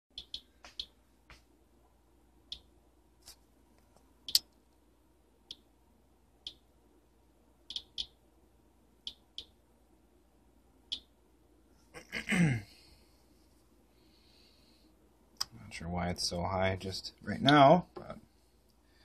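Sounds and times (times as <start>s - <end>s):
geiger counter clicking: 0.1s - 0.9s, 7.7s - 8.2s.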